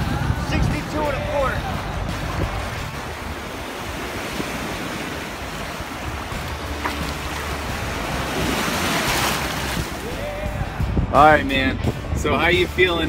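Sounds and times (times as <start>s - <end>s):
wind on microphone: 0.0s - 12.6s
surf breaking in shallows: 2.1s - 10.3s.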